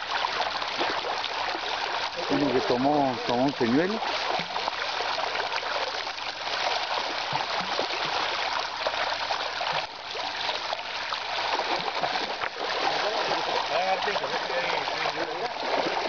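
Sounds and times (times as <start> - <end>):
small fish splashing at surface: 3.2 - 16.0.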